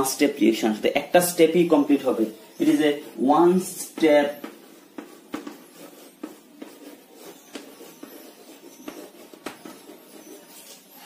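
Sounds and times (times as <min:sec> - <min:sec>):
chalk tapping and scratching: 0:00.0 - 0:11.0.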